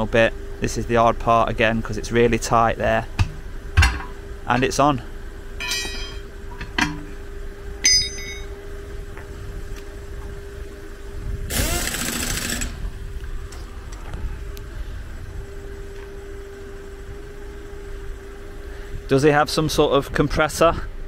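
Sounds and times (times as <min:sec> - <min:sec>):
vehicle engine idling: 0:00.0 - 0:21.0
sharp metallic clinks: 0:05.6 - 0:07.0, 0:07.8 - 0:08.6.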